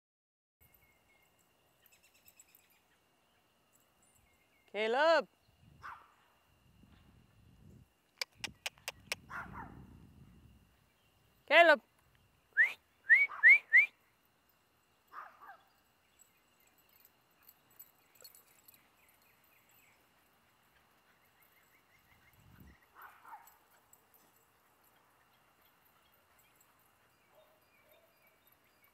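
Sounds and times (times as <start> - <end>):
person whistling short rising whistles: 12.6 - 14.0.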